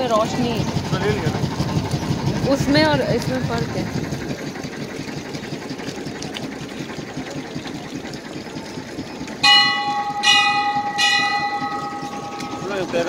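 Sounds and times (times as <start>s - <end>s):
boat motor droning: 0.0s - 13.0s
large bell ringing: 9.4s - 13.0s.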